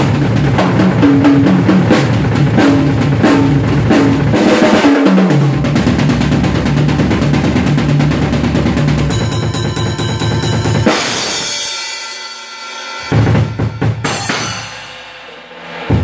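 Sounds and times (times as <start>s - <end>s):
rapid drum strokes: 0.0s - 16.0s
cymbal crash ringing: 9.0s - 16.0s.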